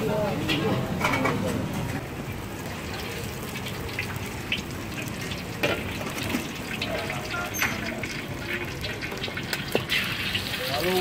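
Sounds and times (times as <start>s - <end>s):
liquid hissing in hot wok: 7.8s - 11.0s.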